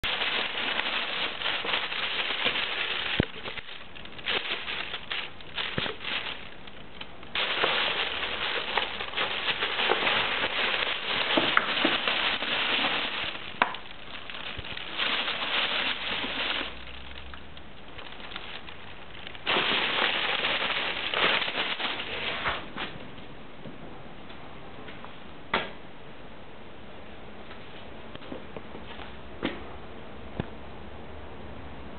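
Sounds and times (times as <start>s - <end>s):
plastic bags crinkling: 0.0s - 23.0s.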